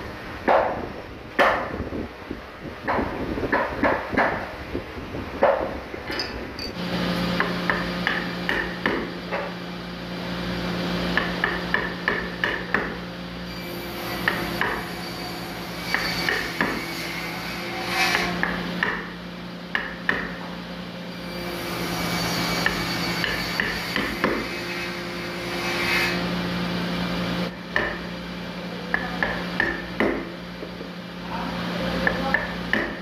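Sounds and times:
mallet knocking on chisel: 0:07.4 - 0:09.5, 0:11.2 - 0:13.0, 0:18.1 - 0:19.1, 0:19.7 - 0:20.4, 0:27.7 - 0:28.1, 0:28.9 - 0:30.8, 0:32.0 - 0:33.0.

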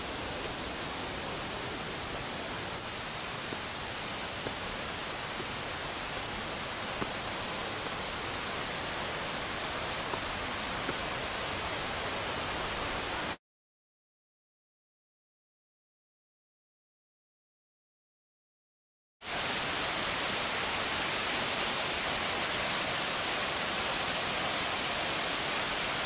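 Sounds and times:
mountain stream rushing: 0:00.0 - 0:13.4, 0:19.3 - 0:26.0.

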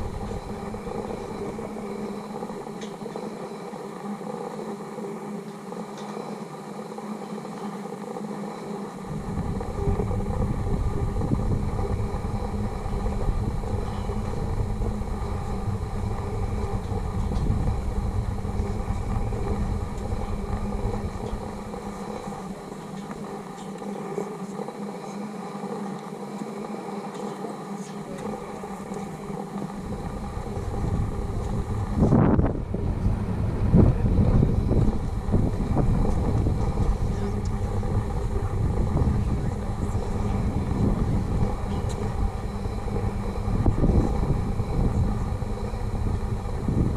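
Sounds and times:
wind rumbling on microphone: 0:00.0 - 0:02.7, 0:09.0 - 0:22.8, 0:28.7 - 0:46.9
faint steady hum: 0:00.0 - 0:46.9.

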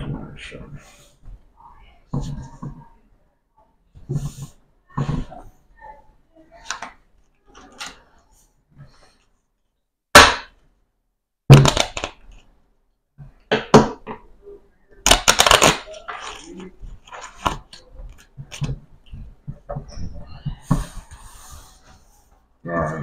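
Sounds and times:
playing cards slapping and rustling: 0:11.6 - 0:12.5, 0:15.1 - 0:18.8.

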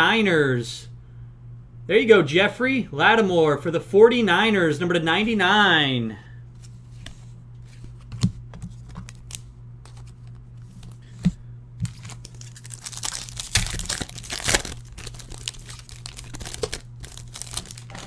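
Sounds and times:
trading cards handled on table: 0:06.6 - 0:13.0
cards tapping: 0:07.8 - 0:12.2
foil wrapper crinkling and tearing: 0:11.8 - 0:18.0.

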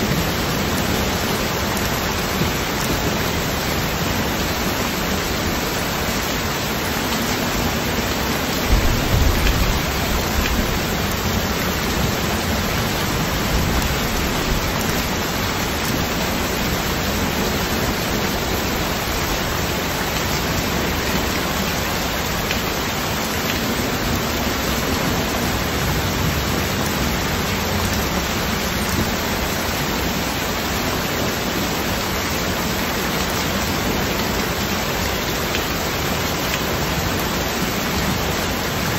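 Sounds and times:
heavy rain splashing into water: 0:00.0 - 0:38.9
low rumble: 0:08.6 - 0:12.0.

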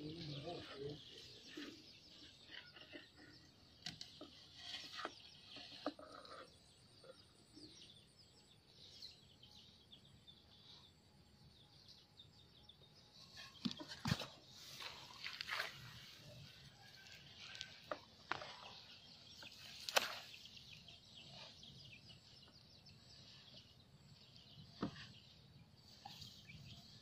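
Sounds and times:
faint birds chirping: 0:00.0 - 0:27.0
metal bowl scraping soil: 0:00.3 - 0:07.1, 0:13.2 - 0:20.4.

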